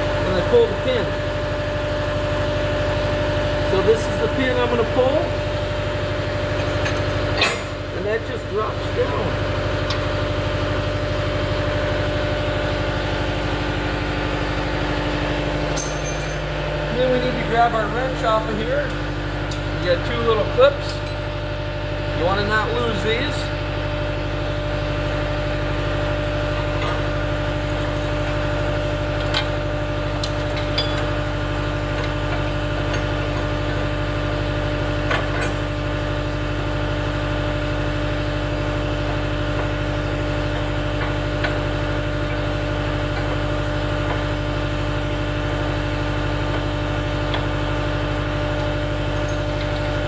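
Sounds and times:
diesel engine idling: 0.0s - 15.8s, 16.4s - 27.7s.

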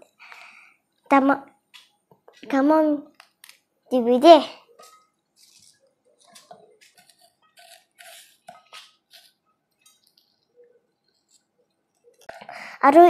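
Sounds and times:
knife cutting on wooden board: 6.4s - 9.4s.

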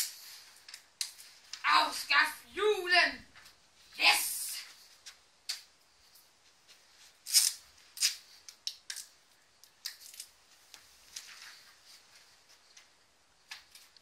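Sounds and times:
paper and tape rustling and tearing: 6.2s - 12.8s.

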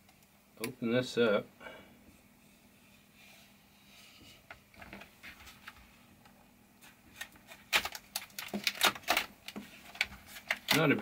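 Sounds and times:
plastic packaging crackling: 7.1s - 11.0s.

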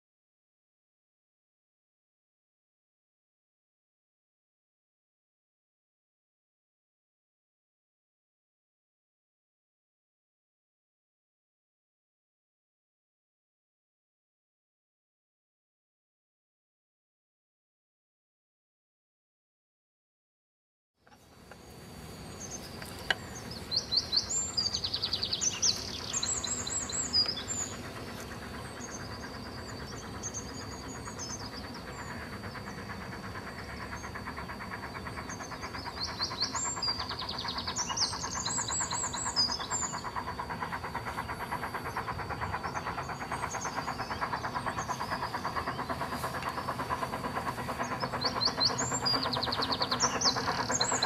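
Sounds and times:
steam locomotive exhaust beats: 21.3s - 51.0s
songbird chirping: 21.5s - 32.2s.

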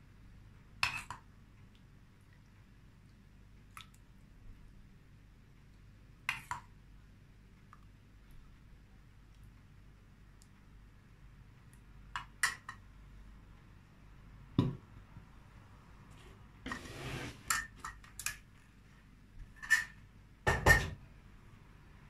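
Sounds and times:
bowl scraping on table: 16.1s - 17.8s.

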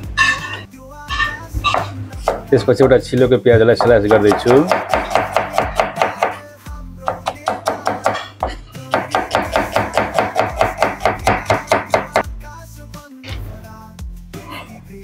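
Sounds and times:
knife slicing onion on board: 3.8s - 6.4s, 7.1s - 8.3s, 8.9s - 12.2s.

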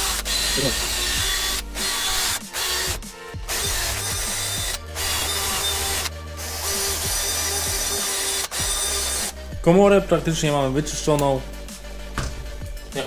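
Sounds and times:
drill spinning wire brush on metal: 0.0s - 9.4s.

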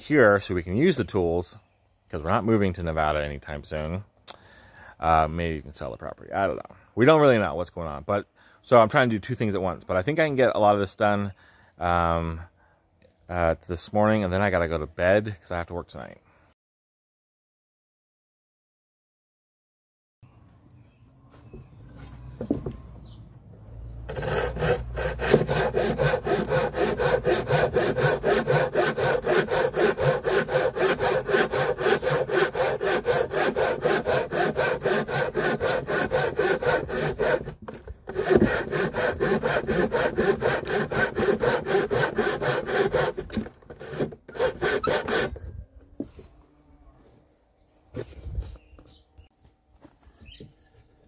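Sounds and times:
hand saw cutting wood: 24.1s - 45.4s.

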